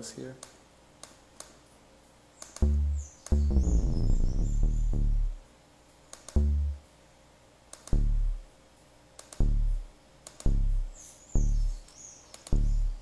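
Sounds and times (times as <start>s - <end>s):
mouse clicks: 2.4s - 3.4s, 6.1s - 6.5s, 9.2s - 9.5s, 10.2s - 11.1s, 11.8s - 12.6s
deep synth bass notes: 2.6s - 5.4s, 6.4s - 6.9s, 7.9s - 8.5s, 9.4s - 11.9s, 12.5s - 13.0s.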